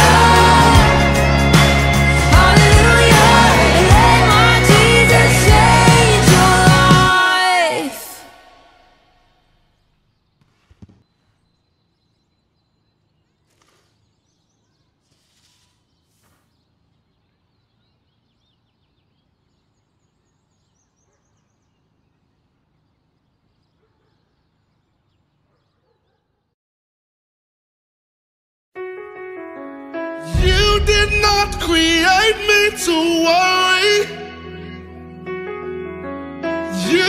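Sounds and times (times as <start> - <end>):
faint high chirping: 8.8 - 26.5.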